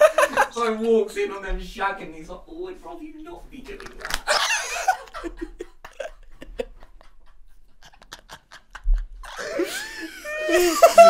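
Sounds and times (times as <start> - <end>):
men laughing with gasps and wheezes: 0.0 - 0.5, 4.2 - 11.0.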